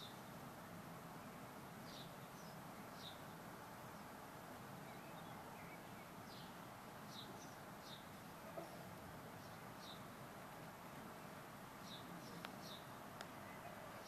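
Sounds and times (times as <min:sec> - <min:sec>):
background hiss: 0:00.0 - 0:14.0
small bird chirping: 0:01.8 - 0:04.1, 0:04.8 - 0:10.1, 0:11.2 - 0:14.0.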